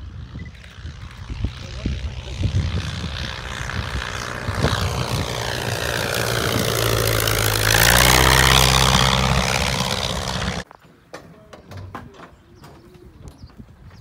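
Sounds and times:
light plane engine flying past: 0.0 - 10.6.

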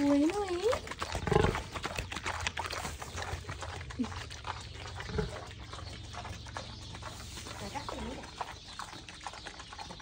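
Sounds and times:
pig chewing wetly: 0.0 - 10.0
pig grunting: 1.1 - 1.8, 3.5 - 5.8.

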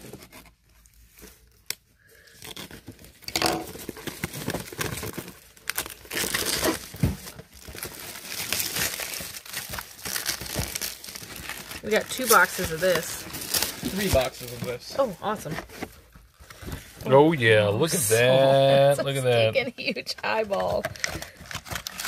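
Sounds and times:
plastic wrap tearing and crinkling: 0.0 - 14.9, 20.6 - 22.0.

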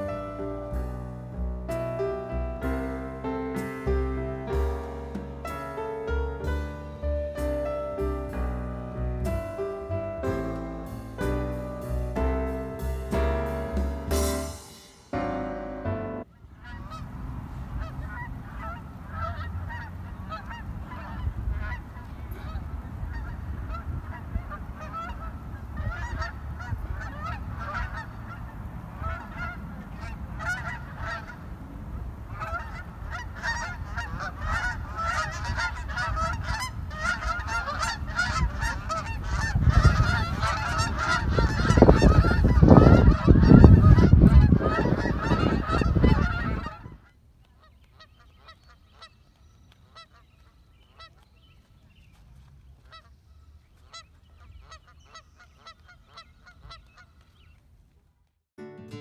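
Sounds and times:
loud low rumble: 0.0 - 46.8
geese honking: 0.0 - 51.7, 52.4 - 57.5.

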